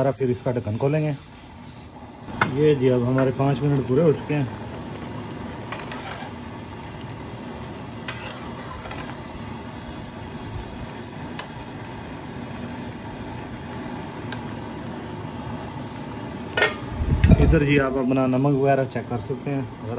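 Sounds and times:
boiling and gas burner rushing: 0:00.0 - 0:19.9
spatula stirring rice in pot: 0:05.7 - 0:06.4, 0:08.0 - 0:09.2.

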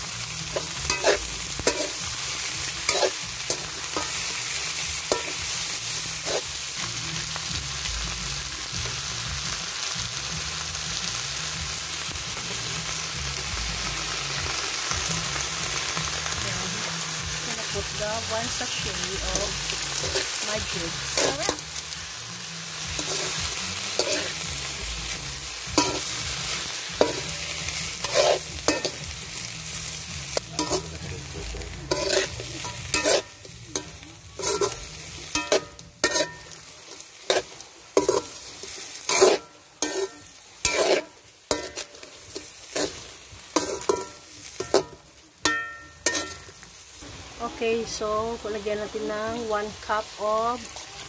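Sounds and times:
shrimp sizzling in a pan: 0:00.0 - 0:51.0
spatula scraping a pan: 0:00.5 - 0:06.6, 0:22.9 - 0:24.6, 0:25.2 - 0:29.4, 0:31.9 - 0:46.6.

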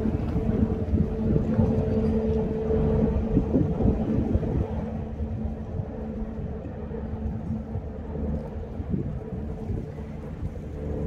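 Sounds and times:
ferry engines humming: 0:00.0 - 0:11.0
wind rumble on microphone: 0:00.0 - 0:11.0.

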